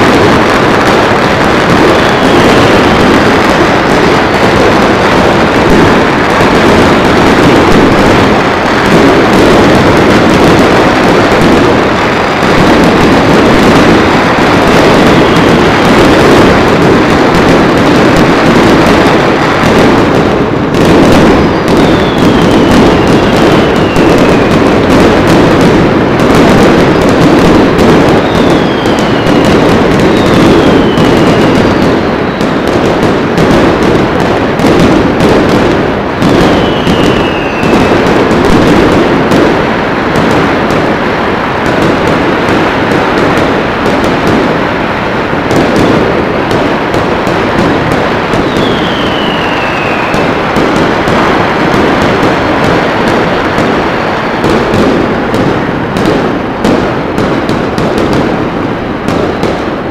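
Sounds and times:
fireworks and firecrackers: 0.0s - 59.9s
whistling fireworks: 0.0s - 59.9s.

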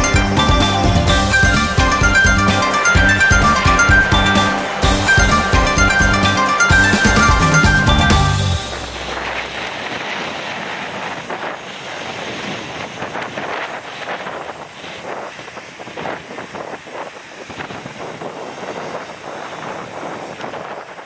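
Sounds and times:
jet engines rushing: 0.0s - 21.0s
wind buffeting microphone: 0.0s - 21.0s.

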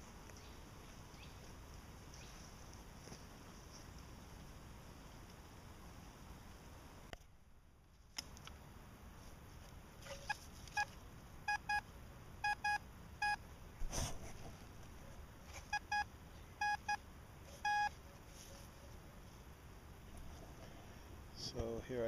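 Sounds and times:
metal detector beeping: 10.2s - 11.8s, 12.4s - 13.4s, 15.7s - 17.0s, 17.6s - 18.0s.

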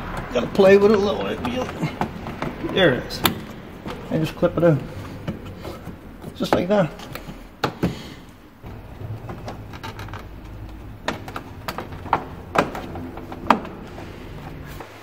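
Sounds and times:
hard plastic clicks and knocks: 4.8s - 14.0s.

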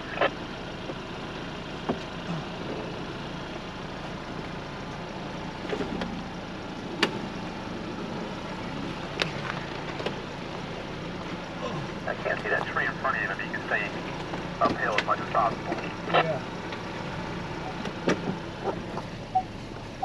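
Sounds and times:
low engine running: 0.0s - 20.0s
vehicle knocks and clicks: 1.8s - 2.2s, 7.0s - 7.3s, 9.2s - 10.2s, 14.1s - 16.0s, 17.8s - 19.2s.

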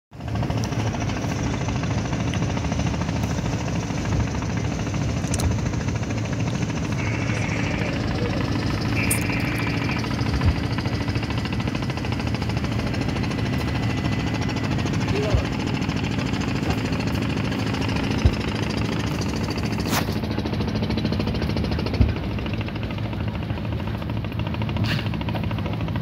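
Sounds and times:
boat engine chugging: 0.2s - 26.0s
short high-pitched tones: 7.0s - 10.5s.

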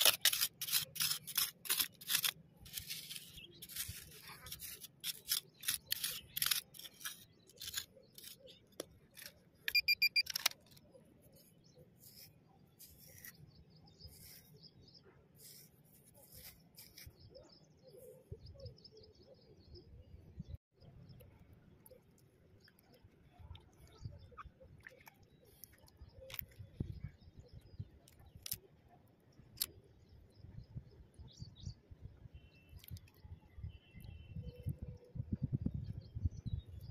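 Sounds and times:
hand tool scraping soil: 0.0s - 10.5s, 11.3s - 14.7s, 15.4s - 17.2s
small birds chirping: 0.0s - 36.9s.

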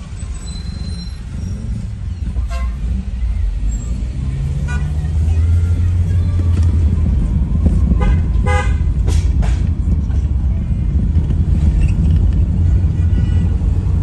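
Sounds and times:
car rumbling on rough road: 0.0s - 14.0s
car horn toot: 2.4s - 2.9s, 8.0s - 8.9s, 12.9s - 13.6s.

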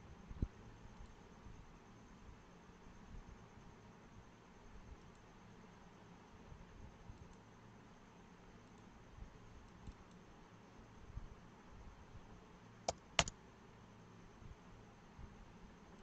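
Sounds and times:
faint steady hiss: 0.0s - 16.0s
keyboard key clicks: 12.9s - 13.3s.

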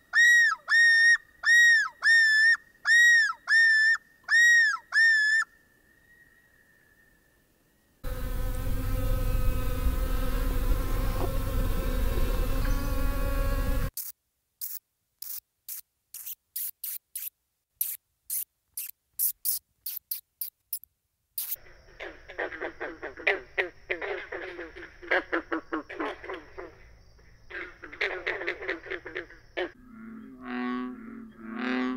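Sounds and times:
loud buzzing drone: 8.0s - 13.9s
bat squeaks as sharp clicks: 14.0s - 20.8s, 21.4s - 21.6s
high insect tone: 14.0s - 27.8s
frog calls: 21.4s - 26.9s, 27.5s - 31.9s.

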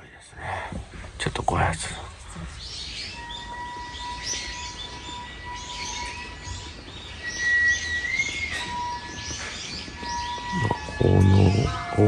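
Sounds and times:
small birds chirping: 0.0s - 12.0s
steady high tone: 9.9s - 12.0s.

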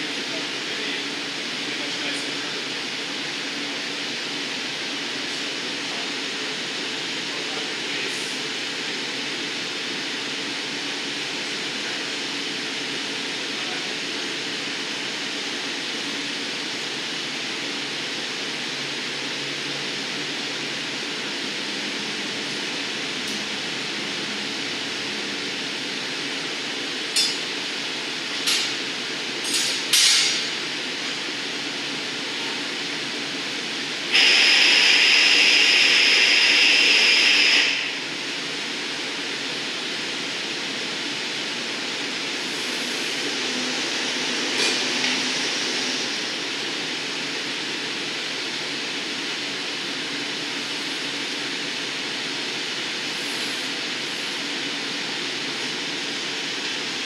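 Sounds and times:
gas burner roaring: 0.0s - 57.0s
loud hiss with high whistle: 34.0s - 38.9s.

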